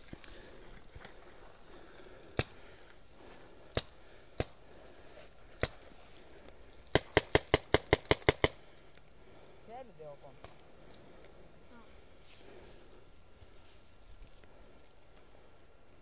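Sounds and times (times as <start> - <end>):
paintball marker shots: 2.3 - 2.6, 3.7 - 4.6, 5.6 - 5.9, 6.9 - 8.6.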